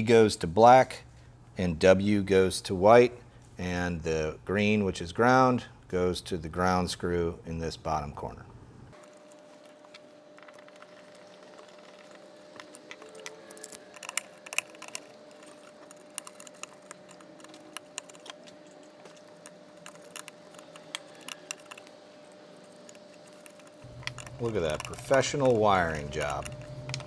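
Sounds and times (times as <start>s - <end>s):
faint steady hum: 0.0s - 27.0s
wire connectors clicking and rattling: 10.4s - 22.0s, 22.7s - 27.0s.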